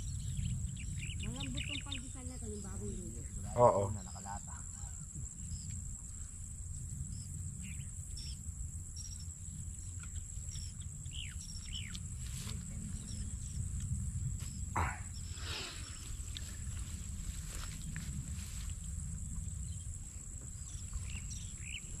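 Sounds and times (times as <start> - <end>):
bird chirps and calls: 0.0 - 4.1, 10.0 - 12.0
insects droning: 0.0 - 22.0
wind rumble on microphone: 0.0 - 22.0.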